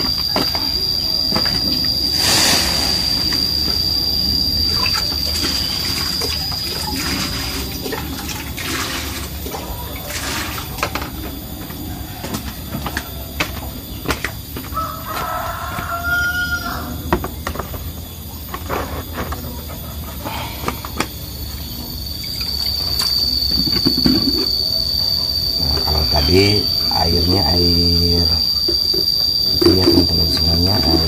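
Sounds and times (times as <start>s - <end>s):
steady high whine: 0.0s - 12.8s, 20.2s - 31.0s.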